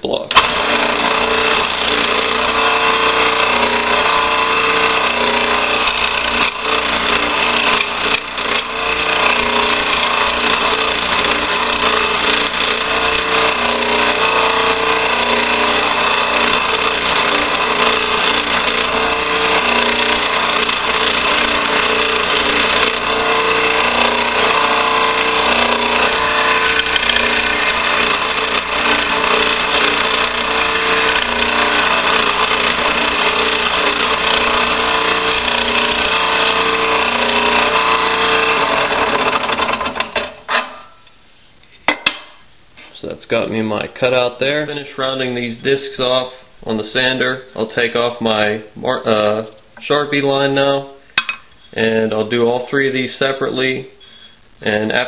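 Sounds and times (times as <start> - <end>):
scroll saw cutting: 0.3 - 40.7.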